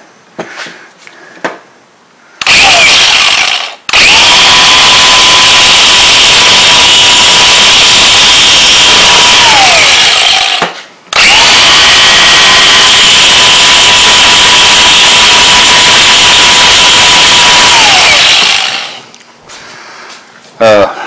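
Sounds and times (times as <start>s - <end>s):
angle grinder grinding metal: 7.8s - 14.0s, 15.4s - 19.1s.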